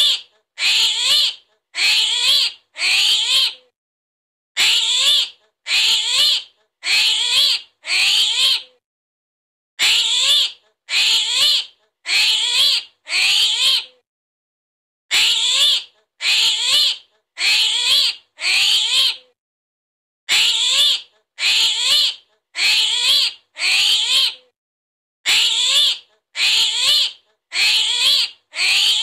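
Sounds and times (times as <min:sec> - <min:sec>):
high squealing animal calls: 0:00.0 - 0:03.6, 0:04.6 - 0:08.7, 0:09.8 - 0:13.9, 0:15.1 - 0:19.2, 0:20.3 - 0:24.4, 0:25.3 - 0:29.0.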